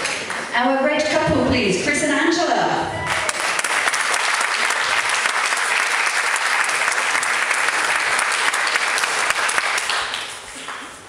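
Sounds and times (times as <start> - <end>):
audience applauding: 0.0 - 0.5, 3.0 - 11.0.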